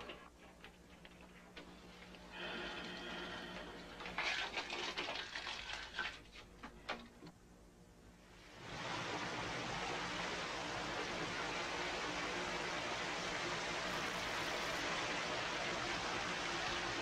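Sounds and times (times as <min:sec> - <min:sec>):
irregular clicks and crackles: 0:00.0 - 0:02.3
shower head spraying water: 0:08.7 - 0:17.0.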